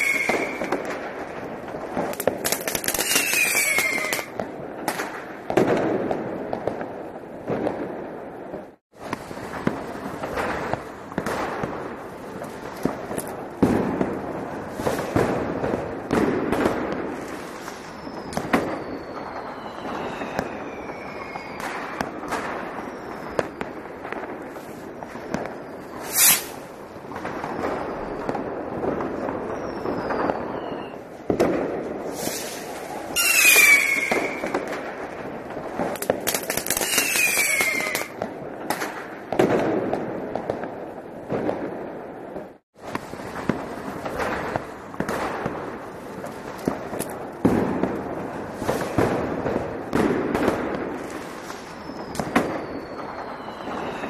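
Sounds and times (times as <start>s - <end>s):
firework whistles: 0.0s - 5.8s, 13.8s - 38.2s, 48.5s - 54.0s
dense firecracker crackling: 0.0s - 54.0s
firecracker bangs: 23.4s - 30.5s, 31.3s - 35.1s, 46.5s - 51.5s.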